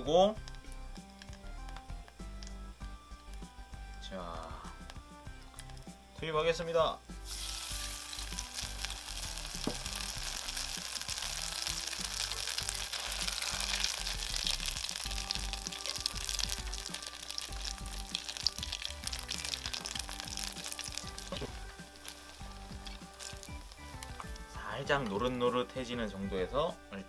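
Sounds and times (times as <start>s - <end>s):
bread deep-frying in oil: 7.2s - 25.3s.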